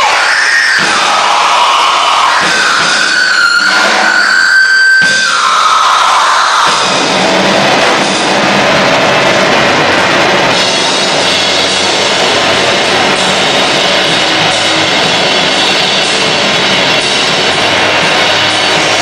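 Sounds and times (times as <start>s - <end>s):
distorted noise music: 0.0s - 19.0s.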